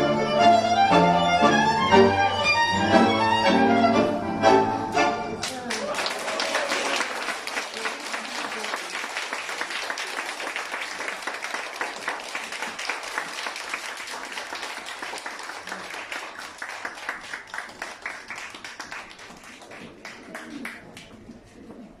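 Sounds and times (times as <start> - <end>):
audience applauding: 5.4 - 21.1.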